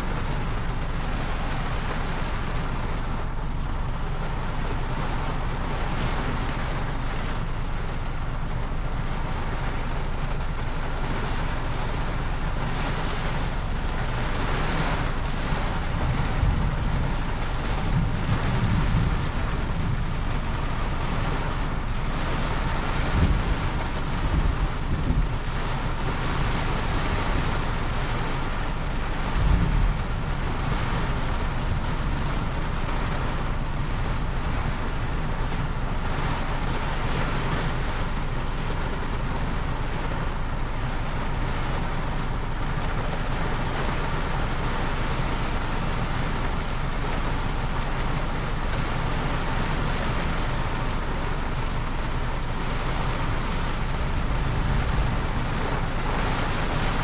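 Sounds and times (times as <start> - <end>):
steady rain: 0.0 - 57.0
low rumble: 8.5 - 36.3, 51.3 - 57.0.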